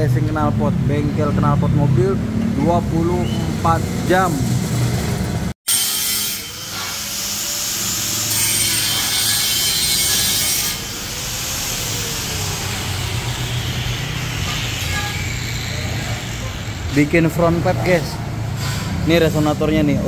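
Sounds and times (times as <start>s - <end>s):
angle grinder grinding metal: 5.7s - 18.0s.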